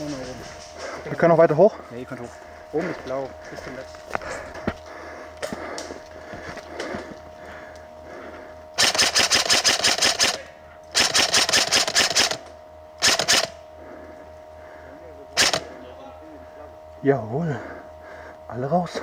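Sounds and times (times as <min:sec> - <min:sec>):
airsoft rifle full-auto bursts: 0:08.8 - 0:13.6, 0:15.4 - 0:15.7.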